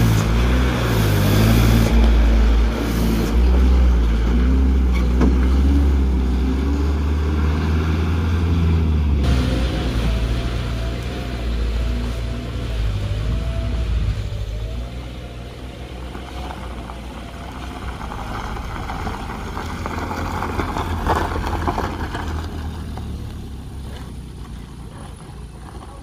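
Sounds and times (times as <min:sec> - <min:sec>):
car engine hum: 0:00.0 - 0:26.0
tyres crunching over gravel: 0:15.3 - 0:26.0.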